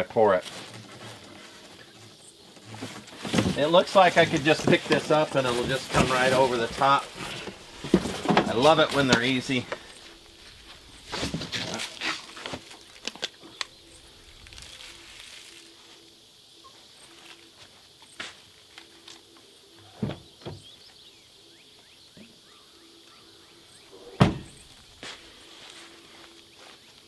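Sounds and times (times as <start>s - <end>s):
plastic rustling: 2.6s - 15.7s
footsteps: 2.6s - 16.1s, 24.4s - 27.0s
thumps: 2.8s - 9.9s.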